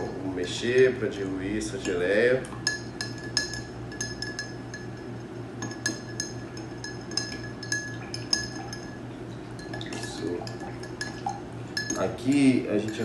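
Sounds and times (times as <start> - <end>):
metal spoon clinking against glass: 2.6 - 9.0, 9.6 - 13.0.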